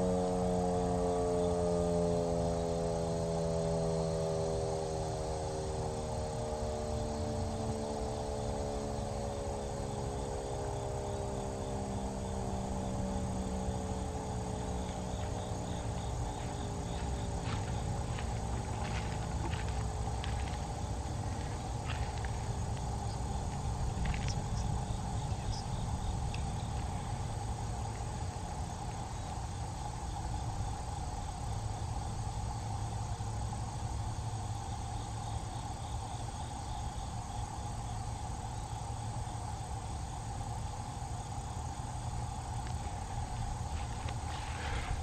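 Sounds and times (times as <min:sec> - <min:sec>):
electromechanical siren wailing: 0:00.0 - 0:09.8.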